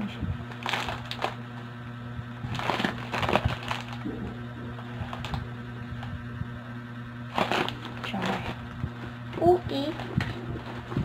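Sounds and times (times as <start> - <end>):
plastic packaging crinkling: 0.5 - 1.7, 2.4 - 4.2, 5.0 - 5.5, 7.3 - 9.2.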